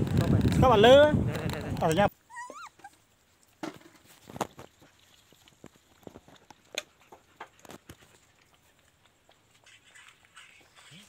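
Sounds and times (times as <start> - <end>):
puppies lapping milk: 4.2 - 11.0.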